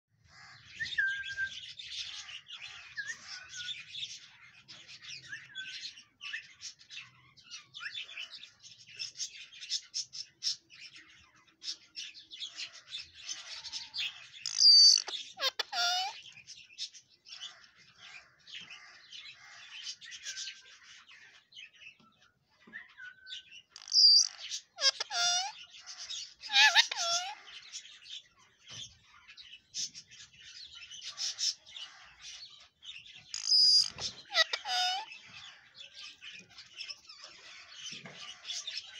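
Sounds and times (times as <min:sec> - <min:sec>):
loud parakeet calls: 0:12.4 - 0:16.4, 0:23.6 - 0:27.8, 0:30.8 - 0:38.9
parakeet chattering: 0:14.4 - 0:16.3, 0:23.7 - 0:27.5, 0:33.3 - 0:35.2.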